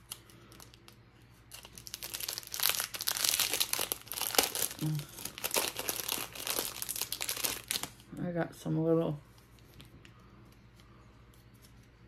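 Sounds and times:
packaging crinkling and rustling: 0.0 - 8.1.

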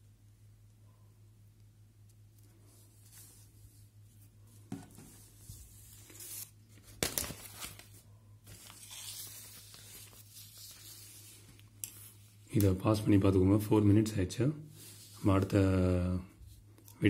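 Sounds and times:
faint steady hum: 0.0 - 17.0
paper page rustling: 4.9 - 12.7.

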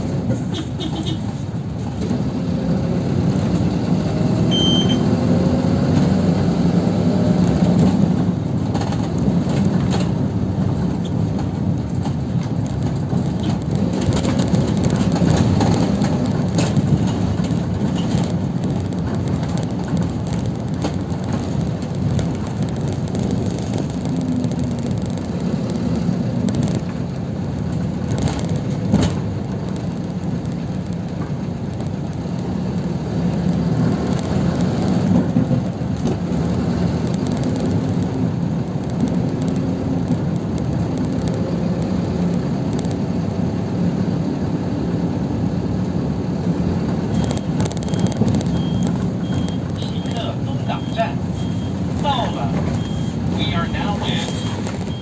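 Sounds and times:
bus engine and road rumble: 0.0 - 55.0
knocks and rattles: 7.5 - 32.6.

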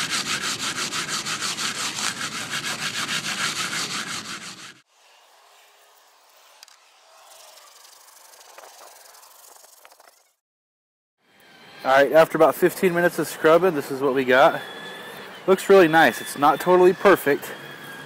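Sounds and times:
steel wool scrubbing metal plate: 0.0 - 4.8.

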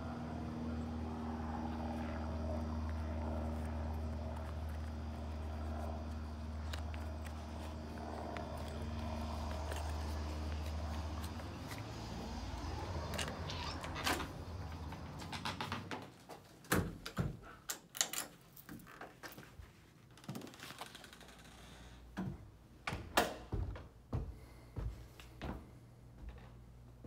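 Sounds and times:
low steady hum: 0.0 - 15.2.

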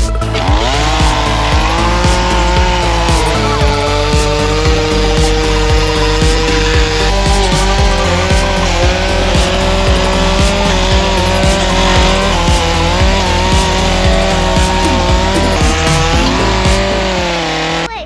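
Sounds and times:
chainsaw cutting into log: 0.0 - 18.0.

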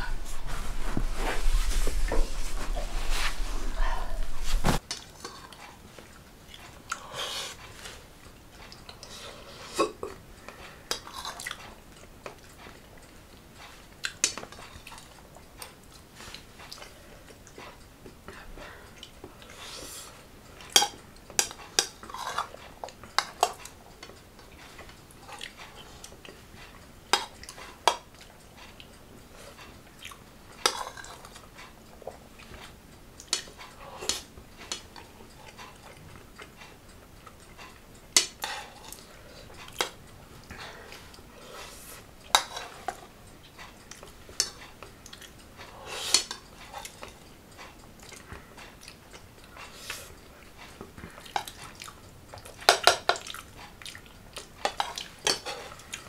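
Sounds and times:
metal spoons clinking on plates: 30.6 - 31.4, 42.3 - 43.1, 52.4 - 53.3, 54.6 - 56.0.

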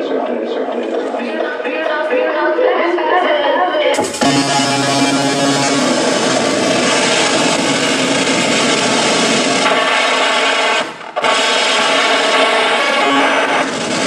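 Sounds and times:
gritty rasping electronic noise: 4.0 - 14.0.

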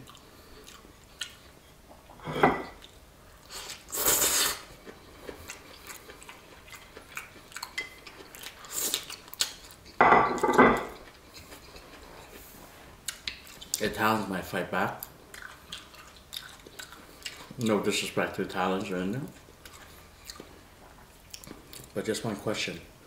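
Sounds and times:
chewing: 0.0 - 1.6, 2.8 - 13.9, 15.0 - 18.0, 19.2 - 22.0
cutlery clinking on plates: 2.3 - 2.8, 10.0 - 11.0.

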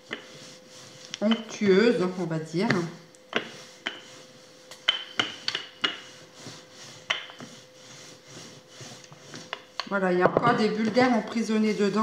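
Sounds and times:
rolling pin rubbing on dough: 0.0 - 12.0.

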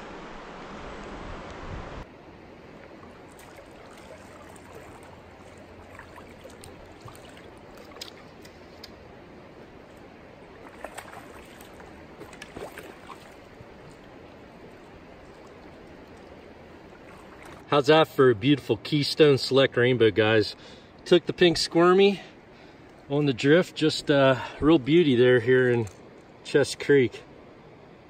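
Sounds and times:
creek water running: 0.0 - 27.4
brief splashes: 3.1 - 9.0, 10.5 - 14.1, 14.7 - 17.7.

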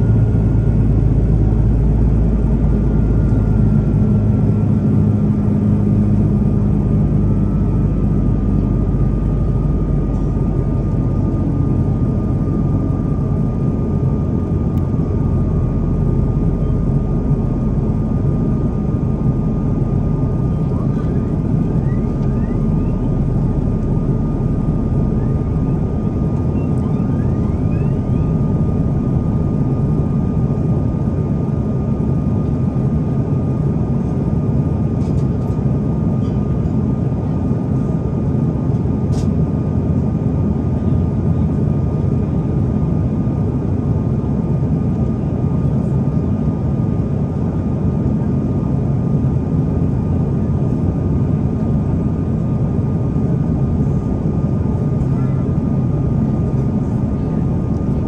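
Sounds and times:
engine and airflow roar: 0.0 - 58.0
thin whine: 14.7 - 30.8.

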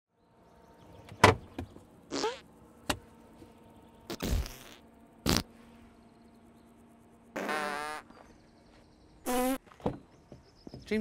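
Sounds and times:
knocks and clunks: 1.1 - 1.8, 9.7 - 11.0.

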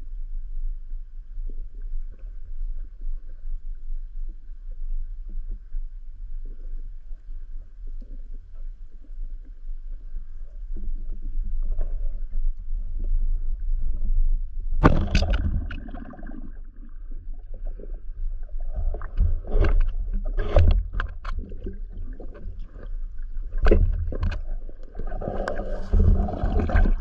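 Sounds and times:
low rumble of moving water: 0.0 - 27.0
crackles and knocks: 14.7 - 27.0.

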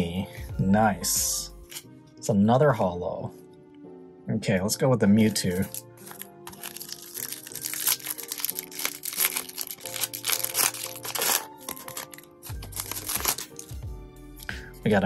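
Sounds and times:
background music: 0.0 - 15.0
plastic wrapper crinkling: 5.5 - 13.8.

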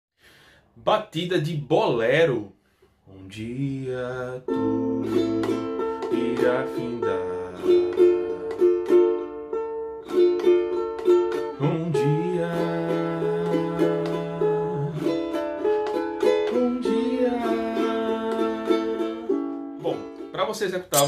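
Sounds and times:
ukulele strumming: 4.4 - 21.0.

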